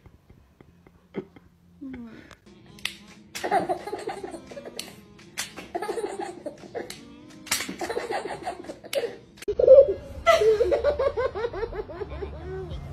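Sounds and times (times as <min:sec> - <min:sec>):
asparagus spears snapping: 0:02.7 - 0:03.6, 0:04.8 - 0:05.7, 0:06.8 - 0:07.9.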